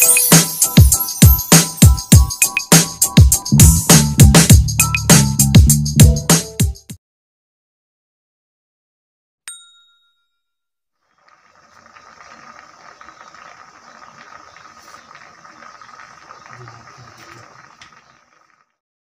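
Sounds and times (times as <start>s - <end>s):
bell ding: 9.5s - 10.5s
pot of water boiling: 11.1s - 18.8s.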